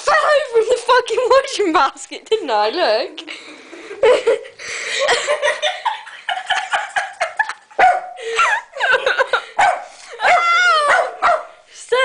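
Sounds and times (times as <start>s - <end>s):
dog barking and yelping: 7.7s - 8.2s, 9.6s - 11.6s.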